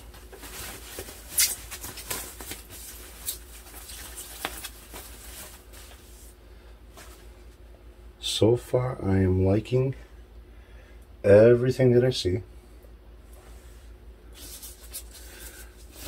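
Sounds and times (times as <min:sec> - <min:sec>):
plastic bag crinkling: 0:00.0 - 0:06.1.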